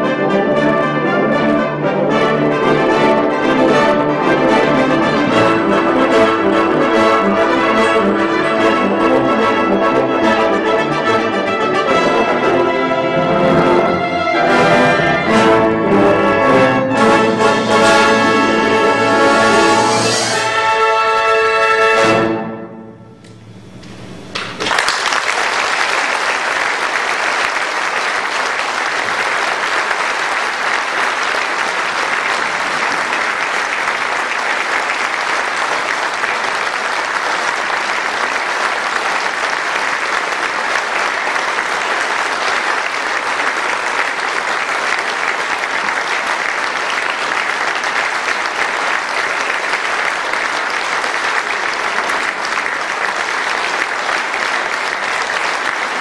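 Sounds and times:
audience applauding: 2.3s - 20.8s, 23.2s - 56.0s
wind band final chord: 22.7s - 24.6s.

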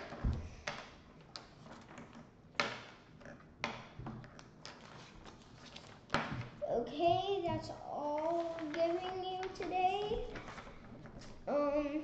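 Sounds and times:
paper rustling and tapping: 3.6s - 11.4s.

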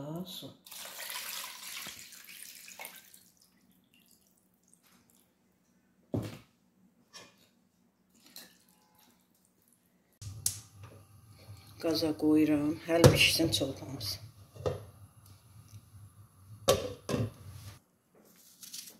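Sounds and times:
water pouring into pot: 0.6s - 5.2s.

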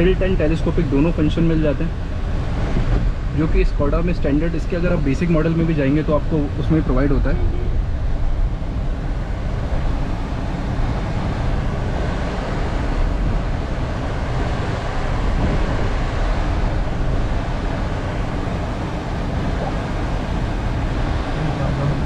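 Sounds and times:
road and tyre noise: 0.0s - 22.0s
car engine: 6.1s - 22.0s.

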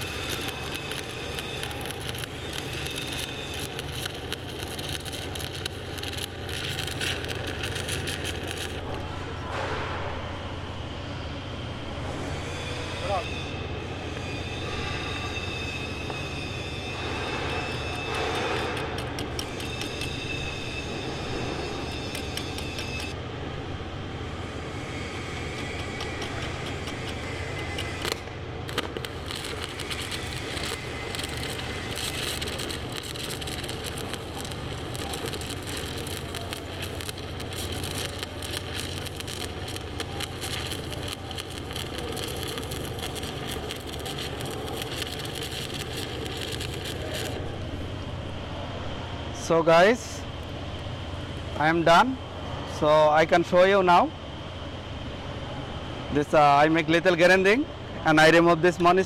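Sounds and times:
welding arc crackling: 0.0s - 9.2s, 15.9s - 23.2s, 24.7s - 48.3s
sharp welding pops: 0.0s - 10.0s, 16.9s - 20.6s, 21.8s - 23.2s, 25.4s - 47.5s
low hum: 18.6s - 49.5s.

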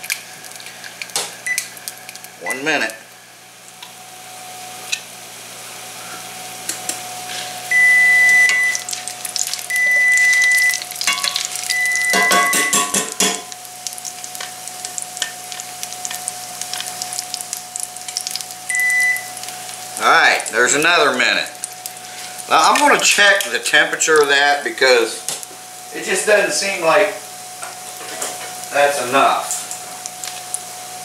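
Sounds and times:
steak sizzling in oil: 7.2s - 31.0s
long electronic beeps: 7.7s - 8.9s, 9.7s - 10.9s, 11.7s - 12.7s, 18.7s - 19.3s
tongs clattering: 11.0s - 13.6s.

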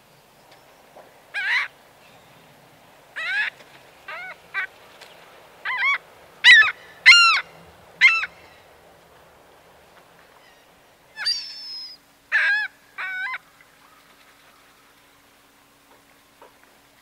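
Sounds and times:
gull calling: 1.4s - 1.7s, 3.2s - 4.7s, 5.6s - 8.6s, 11.2s - 13.4s.

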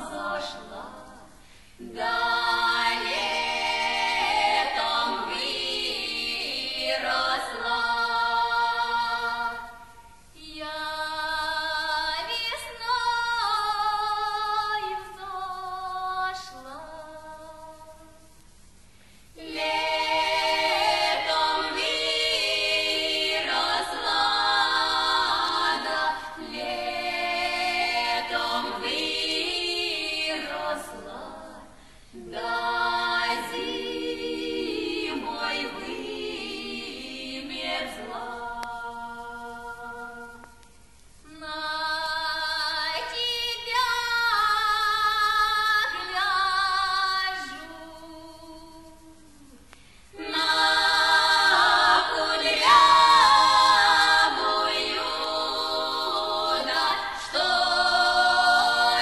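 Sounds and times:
women singing a cappella in harmony: 0.0s - 18.4s, 19.3s - 59.0s.

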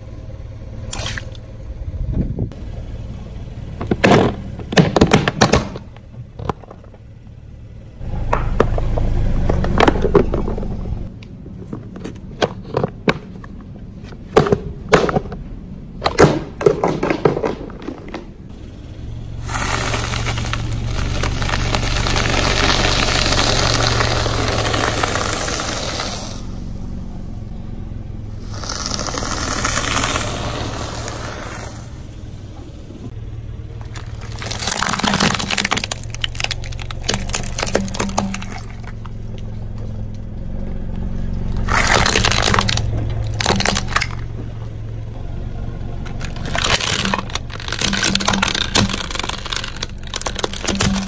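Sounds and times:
low rumble of car: 0.0s - 51.0s
tyre crushing brittle objects: 19.4s - 26.6s, 28.4s - 31.2s, 33.8s - 39.6s, 41.6s - 44.5s, 46.0s - 51.0s.

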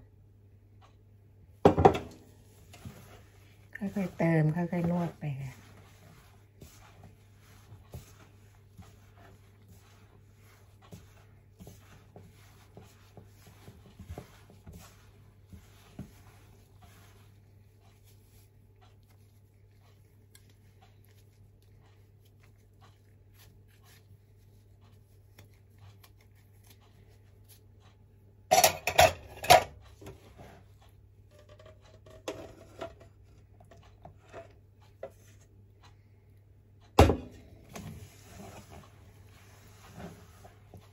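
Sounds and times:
spoon scraping steel bowl: 28.5s - 29.7s
metal pot and bowl clanking: 28.5s - 29.8s.

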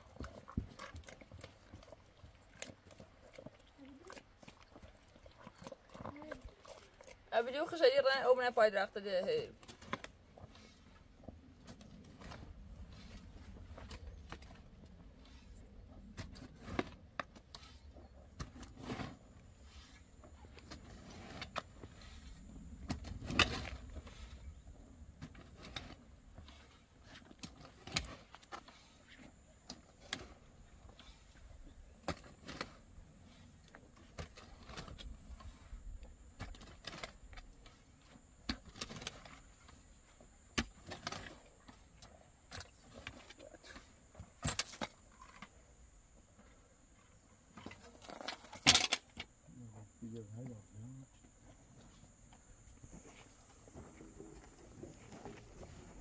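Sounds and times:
objects clicking and knocking: 44.4s - 45.5s, 47.6s - 49.3s.

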